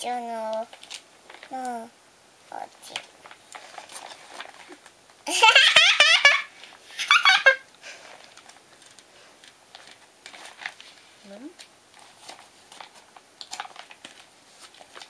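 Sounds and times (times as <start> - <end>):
toddler girl giggling: 5.3 - 7.6.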